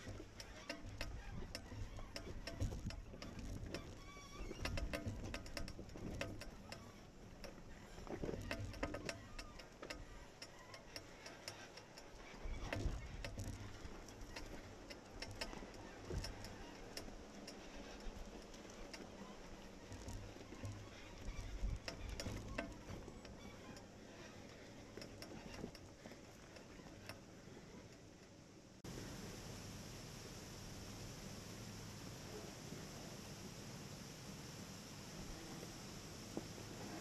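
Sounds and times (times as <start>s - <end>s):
rocks clicking under tyres: 0.0s - 28.4s.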